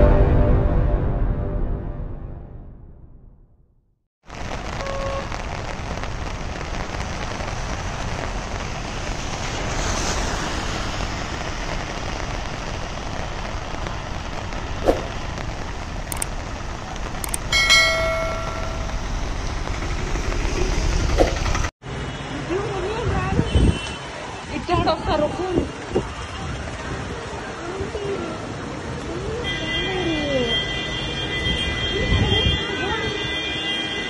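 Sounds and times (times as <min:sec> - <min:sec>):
heavy rain: 0:04.2 - 0:23.4, 0:24.0 - 0:30.5.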